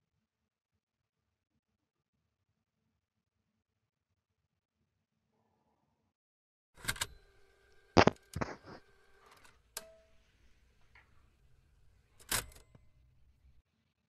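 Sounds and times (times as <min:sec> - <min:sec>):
sharp clicks and knocks: 0:08.0 - 0:08.8.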